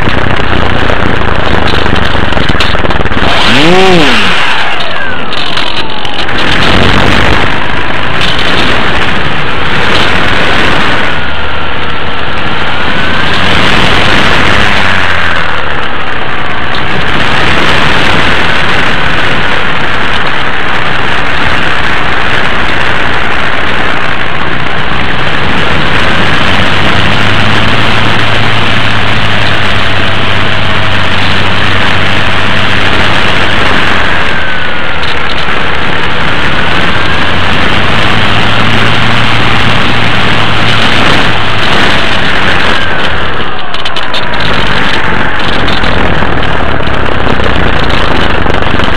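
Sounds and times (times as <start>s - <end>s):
model airplane motor droning: 0.0s - 48.9s
wind rush: 0.0s - 48.9s.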